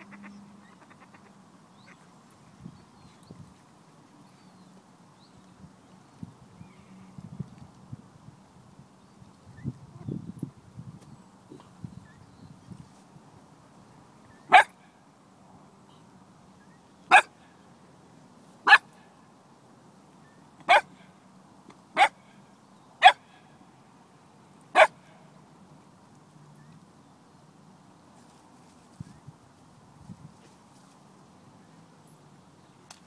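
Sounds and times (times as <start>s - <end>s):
puppy barking: 14.5s - 14.8s, 17.1s - 17.3s, 20.7s - 20.9s, 23.0s - 23.2s, 24.8s - 25.0s.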